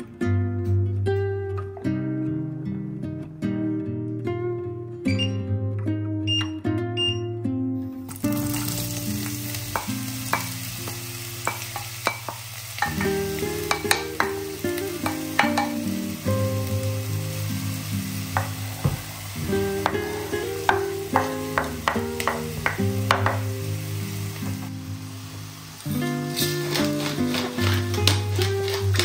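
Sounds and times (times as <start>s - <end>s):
onion sizzling in oil: 8.1s - 29.0s
spoon knocking against bowl: 15.0s - 15.8s.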